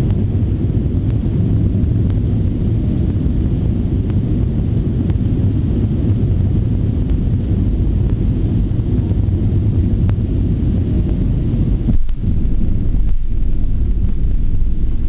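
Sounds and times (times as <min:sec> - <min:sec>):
airliner cabin rumble: 0:00.0 - 0:15.0.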